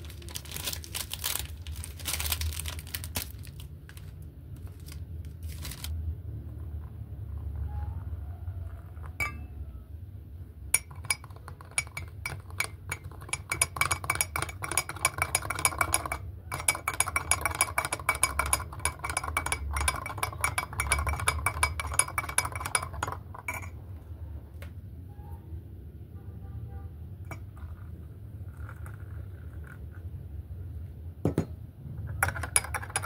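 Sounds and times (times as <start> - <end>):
spoon clinking in glass mug: 9.1 - 9.6, 10.8 - 23.8, 27.3 - 27.8, 32.1 - 33.0.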